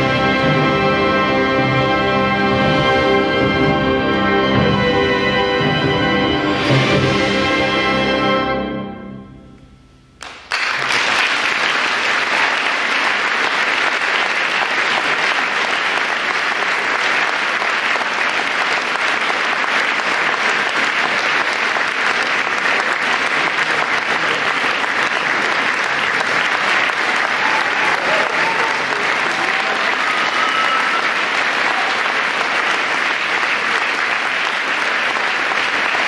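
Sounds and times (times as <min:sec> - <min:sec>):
audience applause: 0:10.2 - 0:36.0.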